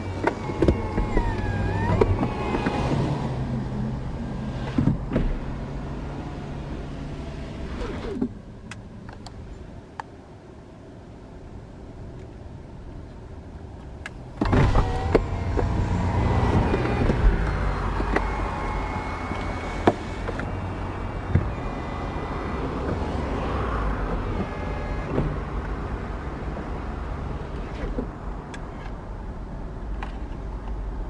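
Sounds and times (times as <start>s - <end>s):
motor whine: 0.0s - 3.8s, 14.4s - 26.0s.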